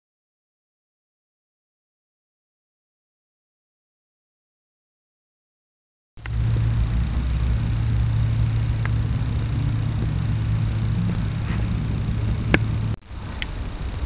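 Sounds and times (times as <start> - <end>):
low mechanical hum: 6.2 - 14.0.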